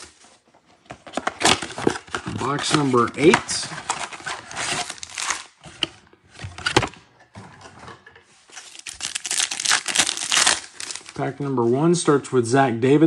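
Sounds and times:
foil wrappers crinkling: 1.5 - 5.6, 8.5 - 11.3.

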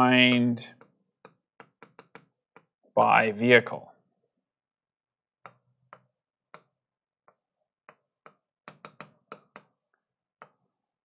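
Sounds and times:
stylus tapping on touchscreen: 0.2 - 2.8, 5.4 - 10.7.

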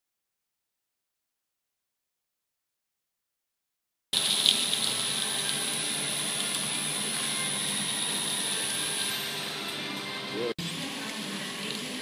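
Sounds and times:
thin high whine: 4.7 - 11.7.

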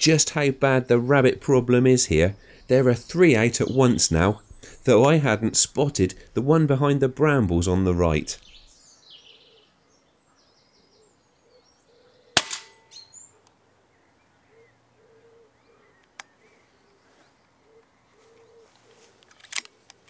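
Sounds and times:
air rifle shot crack: 12.4 - 13.0.

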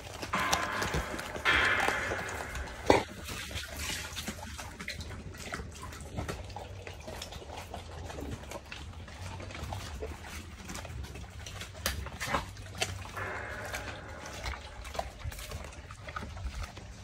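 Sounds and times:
dogs chewing raw meat: 0.0 - 3.6, 4.2 - 17.0
sharp knock: 0.3 - 4.1.

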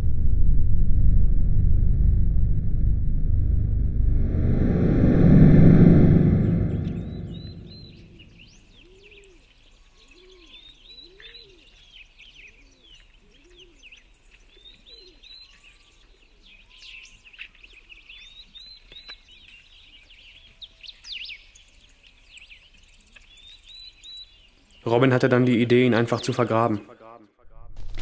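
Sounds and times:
small birds chirping: 7.3 - 27.0
bird hooting call: 8.8 - 11.7.

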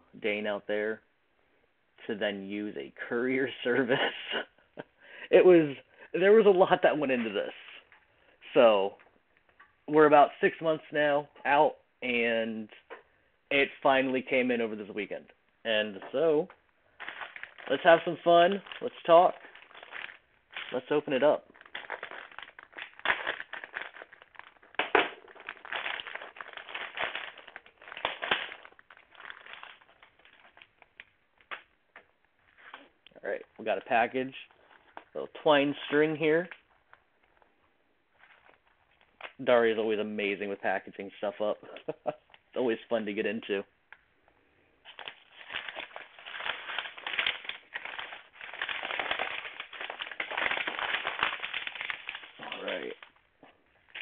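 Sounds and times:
cloth parcel rustling: 16.9 - 31.7, 38.1 - 39.4, 44.8 - 54.0
plastic bag crinkling: 16.9 - 37.4, 38.1 - 39.4, 44.8 - 54.0.

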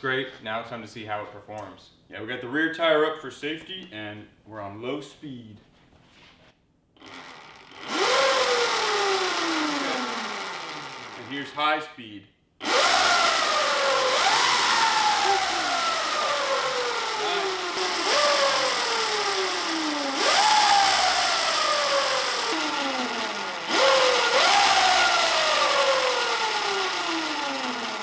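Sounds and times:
electric motor whine: 7.0 - 11.4, 12.6 - 28.0.

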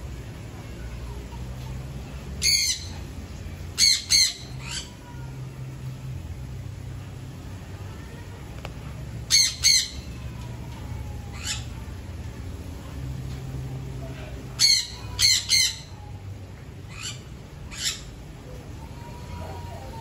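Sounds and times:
cockatoo squawking: 3.8 - 5.0, 9.3 - 10.1, 14.6 - 16.0.

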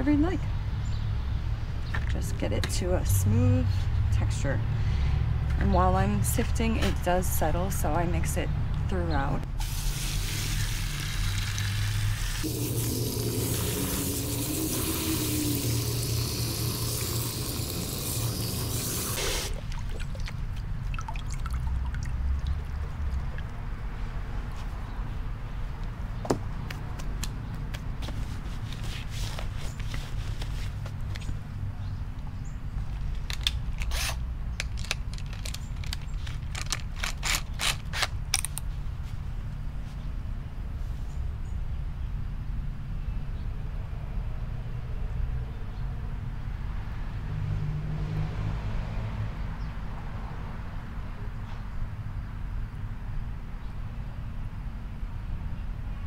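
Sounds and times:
hose nozzle spraying water: 9.6 - 20.4
drill clicking and rattling: 33.3 - 38.1.

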